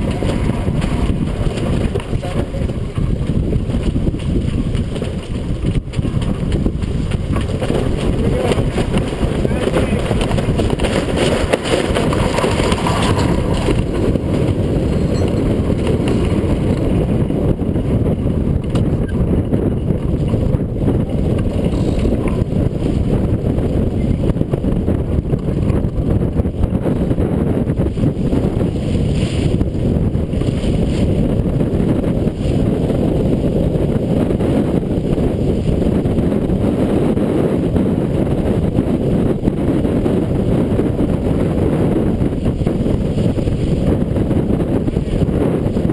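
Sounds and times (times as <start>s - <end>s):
strong wind buffeting microphone: 0.0s - 45.9s.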